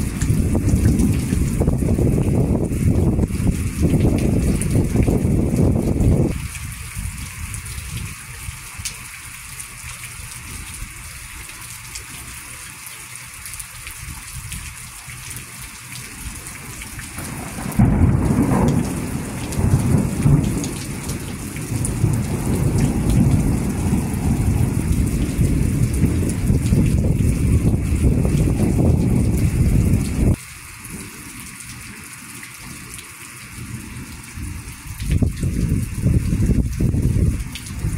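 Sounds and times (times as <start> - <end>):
thunder rumbling: 0.0 - 7.6, 16.6 - 30.4, 34.4 - 37.9
rain hiss: 0.0 - 37.9
loud thunder clap: 17.2 - 30.1.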